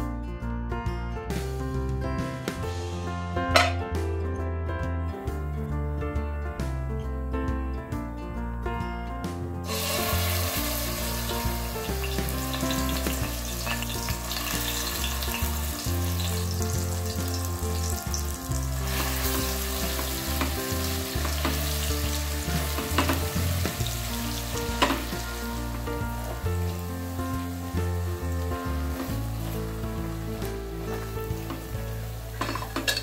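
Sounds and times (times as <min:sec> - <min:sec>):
paste sizzling in hot oil: 0:09.6 - 0:33.0.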